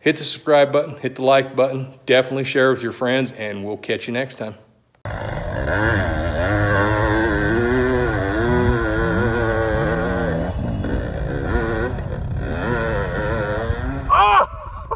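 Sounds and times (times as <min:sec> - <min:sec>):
dirt bike engine revving: 0:05.0 - 0:14.4.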